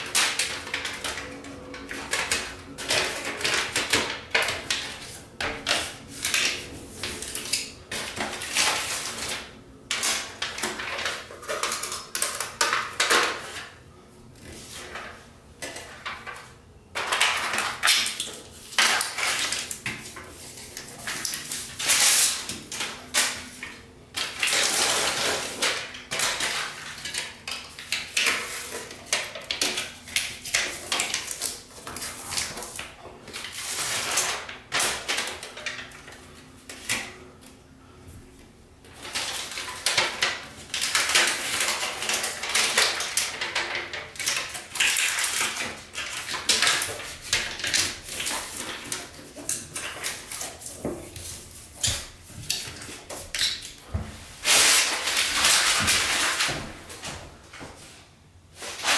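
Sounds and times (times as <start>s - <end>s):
foil tape crackling and ripping: 20.8s - 23.4s, 24.1s - 28.9s, 38.9s - 53.7s, 54.4s - 56.7s, 58.6s - 58.9s.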